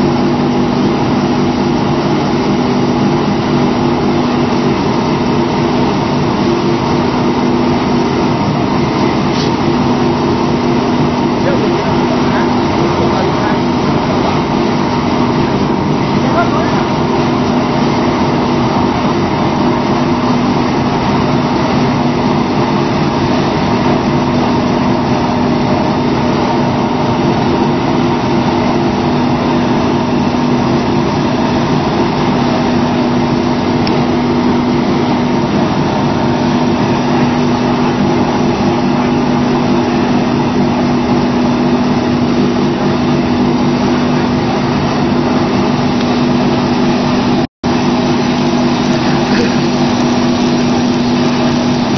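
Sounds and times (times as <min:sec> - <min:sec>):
machine droning: 0:00.0 - 0:51.9.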